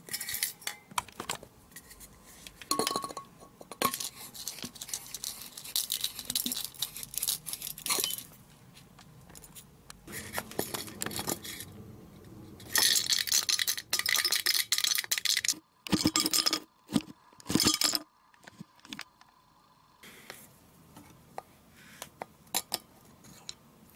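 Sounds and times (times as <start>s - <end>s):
rough metal scraping: 10.1s - 14.1s
metal aerosol can clinking: 12.7s - 16.6s.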